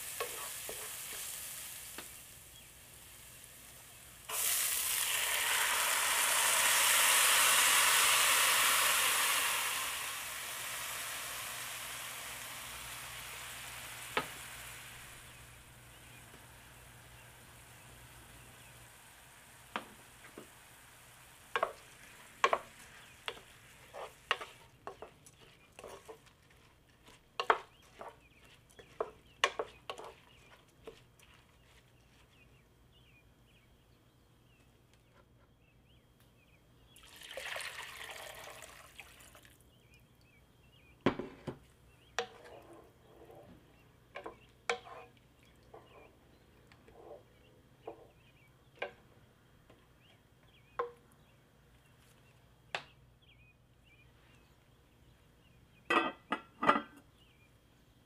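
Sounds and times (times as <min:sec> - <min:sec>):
wooden spoon stirring rice: 0:00.0 - 0:02.2, 0:21.5 - 0:32.6, 0:42.1 - 0:48.2
spoon tapping and scraping pot: 0:00.1 - 0:01.3, 0:21.5 - 0:31.8, 0:42.1 - 0:43.5, 0:44.1 - 0:46.1
water pouring into pot: 0:04.3 - 0:15.1, 0:37.0 - 0:39.6.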